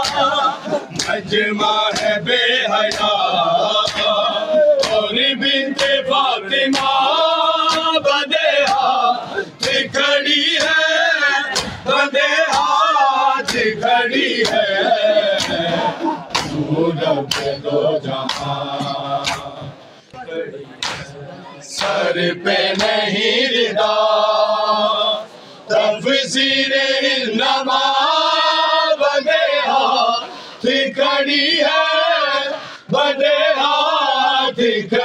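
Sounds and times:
hands beating chests: 0:00.0 - 0:01.2, 0:15.3 - 0:16.7, 0:17.3 - 0:17.6, 0:18.2 - 0:19.5, 0:20.8 - 0:21.2
men chanting in unison: 0:00.0 - 0:35.0.

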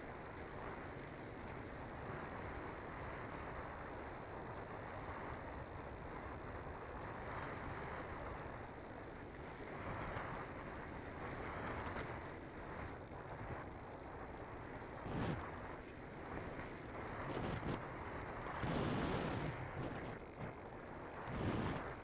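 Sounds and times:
rough wind noise: 0:21.2 - 0:22.0.

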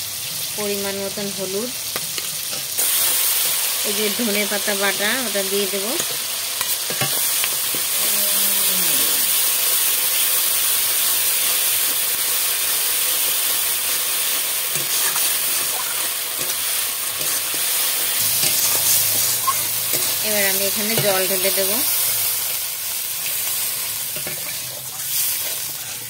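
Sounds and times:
food sizzling in hot oil: 0:00.0 - 0:26.0.

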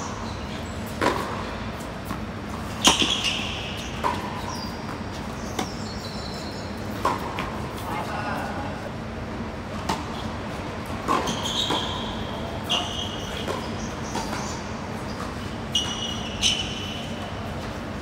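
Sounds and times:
shoes squeaking on hard court: 0:00.2 - 0:08.5, 0:11.0 - 0:17.9
tennis ball struck by rackets: 0:01.0 - 0:02.2, 0:06.9 - 0:07.6.

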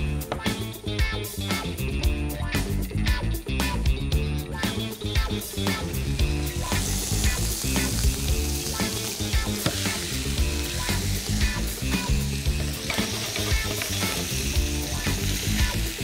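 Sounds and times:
background music with steady beat: 0:00.0 - 0:16.0
fish sizzling on hot platter: 0:05.9 - 0:16.0.

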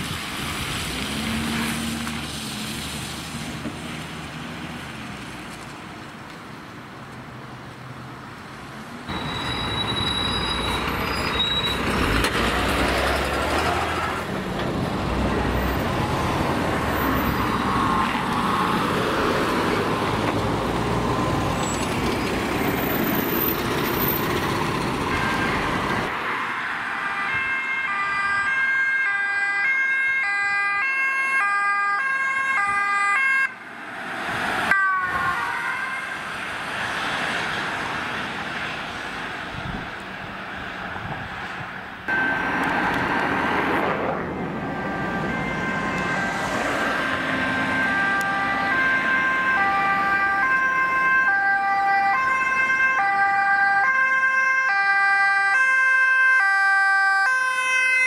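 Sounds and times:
engine and tyre noise: 0:00.0 - 0:58.0
two-tone sirens: 0:09.1 - 0:33.7, 0:34.5 - 0:38.1, 0:42.1 - 0:43.7, 0:44.4 - 0:58.0.

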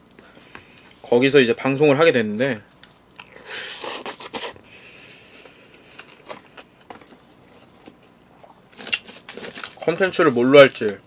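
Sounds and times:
quiet chewing: 0:02.7 - 0:04.6
person eating noisily: 0:02.7 - 0:06.8.

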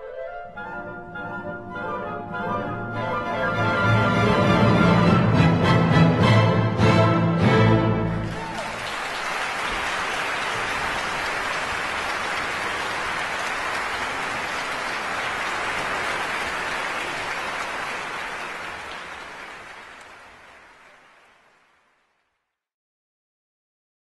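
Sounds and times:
audience applauding: 0:08.0 - 0:22.4.

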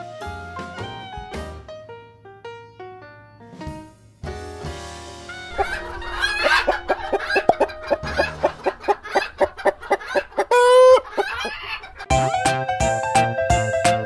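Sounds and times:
hen clucking: 0:05.5 - 0:12.1
hen squawk: 0:05.5 - 0:12.1.

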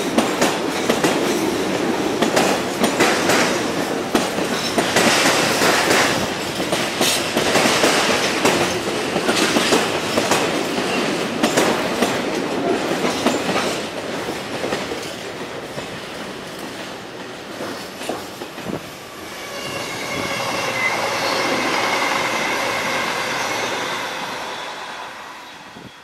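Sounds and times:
train wheels clicking over rail joints: 0:00.0 - 0:19.1
high wheel squeal: 0:19.2 - 0:26.0.

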